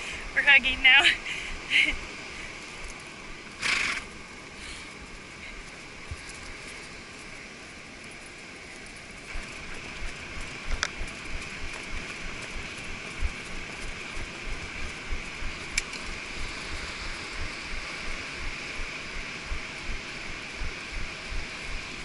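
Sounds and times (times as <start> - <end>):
constant hiss: 0.0 - 22.0
horse hoofbeats on sand: 5.1 - 22.0
sharp clicks: 9.3 - 16.9.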